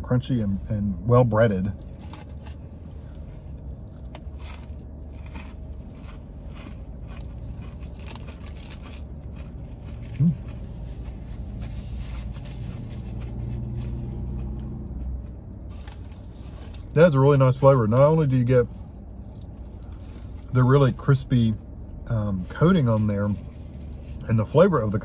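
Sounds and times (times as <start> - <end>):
traffic rumble: 0.0 - 25.0
passing vehicle: 1.7 - 25.0
man chewing crispy food: 1.8 - 17.6, 18.9 - 21.0.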